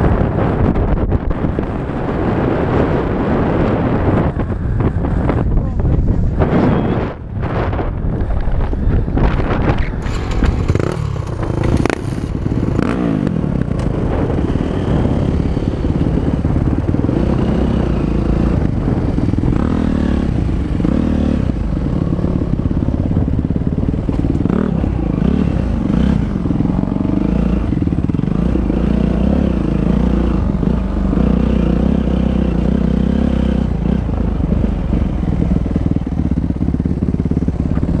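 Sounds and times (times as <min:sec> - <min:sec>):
dirt bike engine revving: 0:08.9 - 0:35.6.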